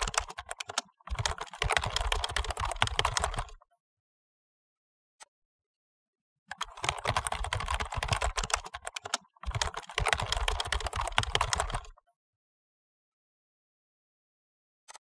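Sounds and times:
computer keyboard typing: 0.0s - 3.6s, 6.5s - 12.0s.

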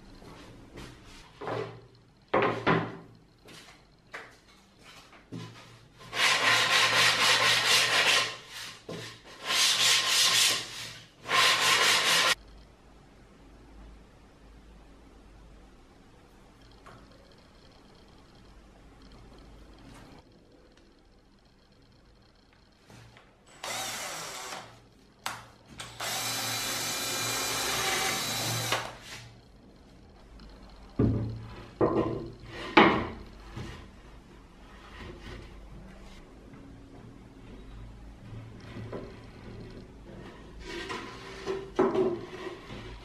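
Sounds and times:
sanding block rasping on wood: 6.2s - 8.7s, 9.4s - 12.4s
power drill boring into wood: 23.5s - 24.8s, 25.8s - 29.0s.

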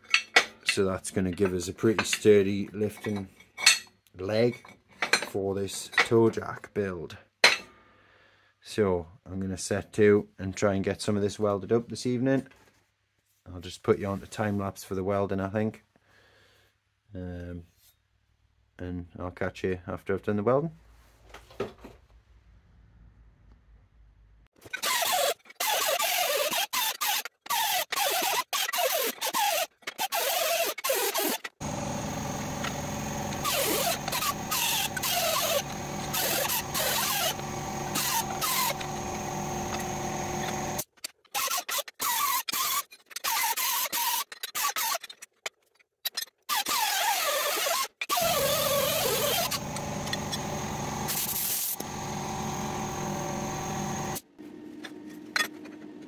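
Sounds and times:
die grinder grinding steel: 24.8s - 44.9s, 46.6s - 54.2s.

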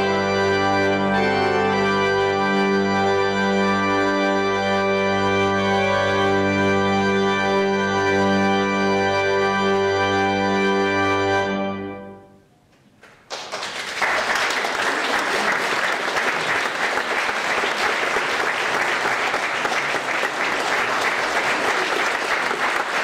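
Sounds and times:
pipe organ chord: 0.0s - 12.5s
audience applauding: 13.0s - 23.0s.

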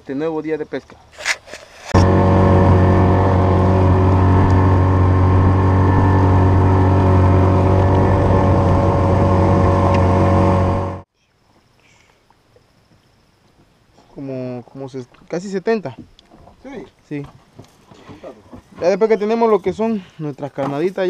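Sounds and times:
outboard motor running: 1.8s - 11.1s.

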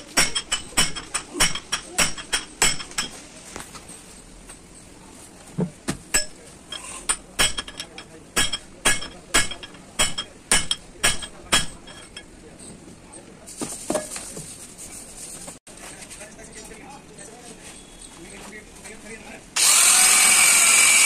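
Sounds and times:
hammer striking steel bar: 0.0s - 3.2s, 7.1s - 12.2s.

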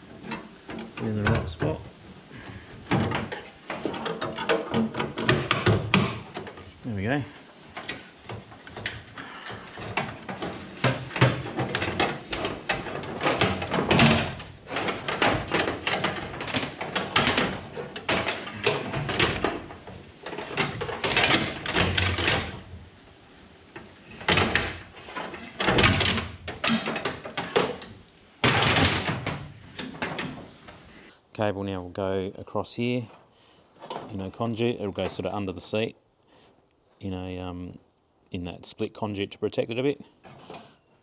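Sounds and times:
knocks and rattles: 0.0s - 23.0s, 23.6s - 30.8s.

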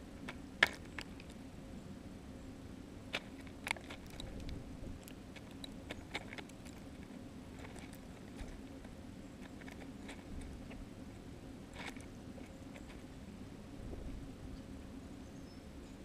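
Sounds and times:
low steady hum: 0.0s - 16.0s
bird bill tapping on seeds: 0.2s - 1.4s, 3.1s - 10.9s.

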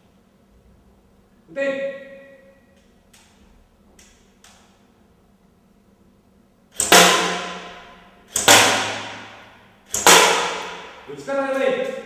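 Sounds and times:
toy rifle shots: 6.8s - 11.0s.

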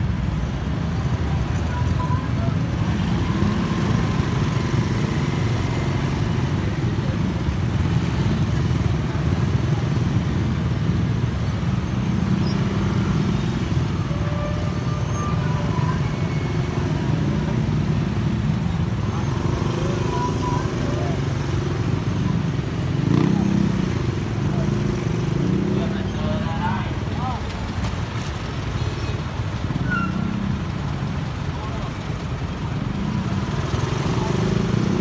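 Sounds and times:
motorcycle engines droning: 0.0s - 28.4s, 29.3s - 35.0s.

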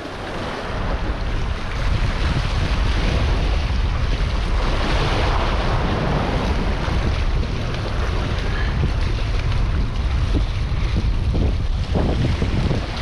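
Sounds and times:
small waves splashing on rocks: 0.0s - 13.0s
wind buffeting microphone: 0.0s - 13.0s.

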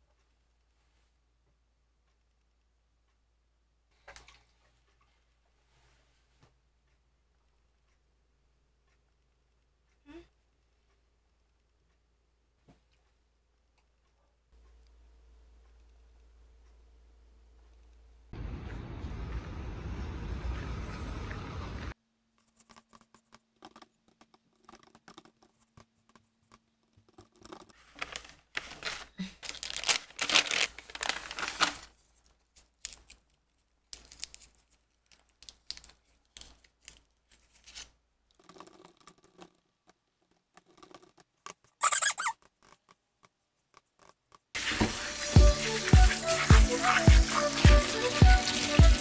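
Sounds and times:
plastic wrapper crinkling and tearing: 27.8s - 33.4s, 34.0s - 37.9s.

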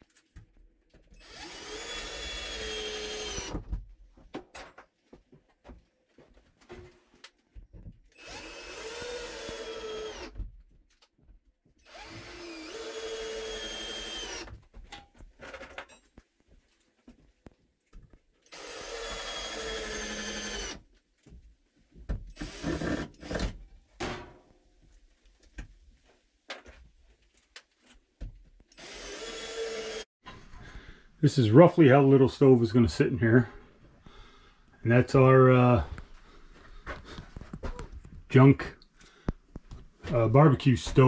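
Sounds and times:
cordless drill driving screws: 1.2s - 3.6s, 8.2s - 10.4s, 11.8s - 14.6s, 18.5s - 20.8s, 22.4s - 23.6s, 28.7s - 30.1s.

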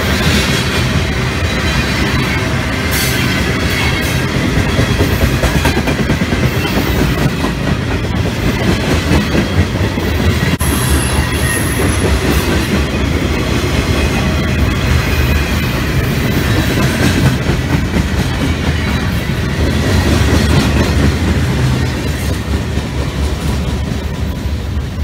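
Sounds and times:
train wheels rumbling on rails: 0.0s - 25.0s
high thin wheel squeal: 10.6s - 13.0s.

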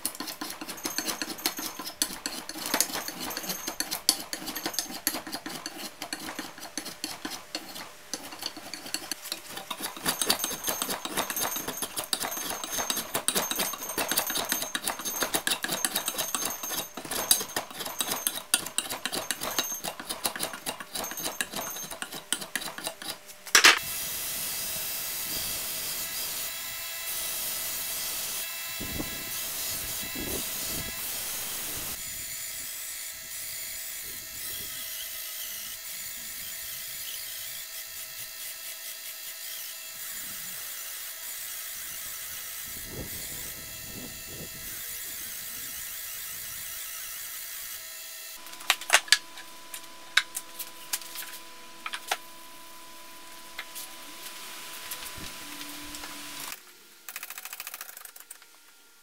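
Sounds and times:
belt grinder whining: 0.0s - 23.8s
file scraping wood: 0.0s - 23.8s.

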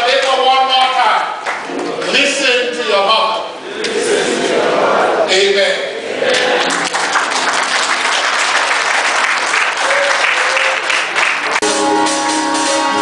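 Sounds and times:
church band music: 0.0s - 4.7s, 5.3s - 13.0s
congregation applauding: 1.3s - 2.2s, 6.3s - 11.8s.

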